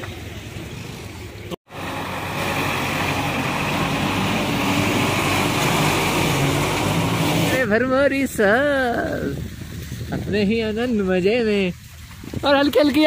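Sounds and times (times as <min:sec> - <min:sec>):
diesel engine running: 0:00.1 - 0:08.3.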